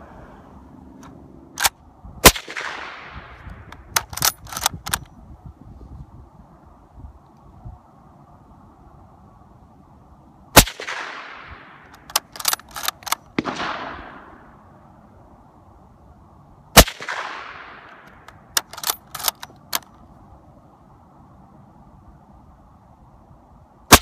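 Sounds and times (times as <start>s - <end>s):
rifle bolt metallic clicks: 1.0s - 1.8s, 2.6s - 5.1s, 11.8s - 13.8s, 16.8s - 20.0s
suppressed rifle shots: 1.6s - 5.0s, 10.6s - 14.6s, 16.8s - 19.8s.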